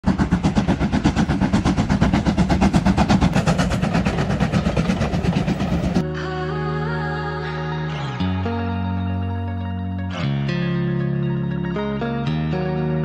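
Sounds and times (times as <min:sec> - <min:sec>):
steam locomotive working hard: 0:00.0 - 0:06.0.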